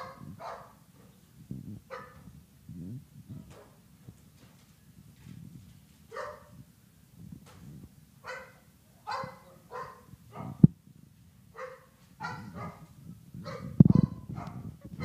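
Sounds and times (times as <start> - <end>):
dog barking: 0.0 - 0.8, 1.9 - 2.2, 6.1 - 6.6, 8.2 - 10.6, 11.6 - 15.0.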